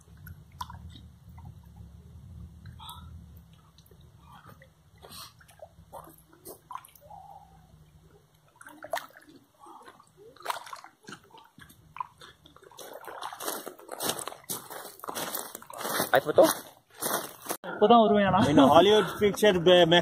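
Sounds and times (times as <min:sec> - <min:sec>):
water lapping on pebbles: 0:02.8 - 0:17.5.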